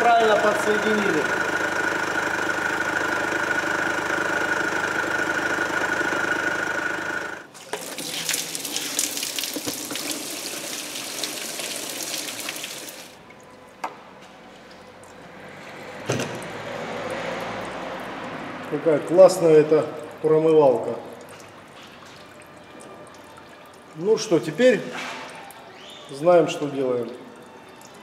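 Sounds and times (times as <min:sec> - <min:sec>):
diesel engine idling: 0:00.0 - 0:07.5
water gushing into drain pan: 0:07.5 - 0:13.2.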